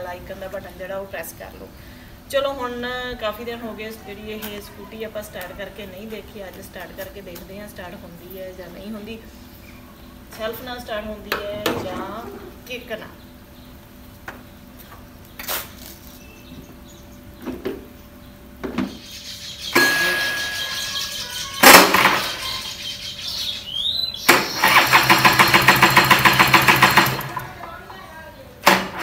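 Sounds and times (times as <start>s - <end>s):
scooter engine cranking: 21.5s - 22.6s, 24.2s - 27.8s.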